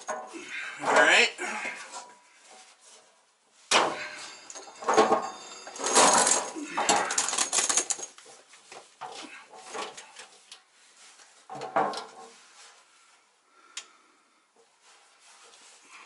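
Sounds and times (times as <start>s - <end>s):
metal knocks and scrapes: 3.7s - 7.5s.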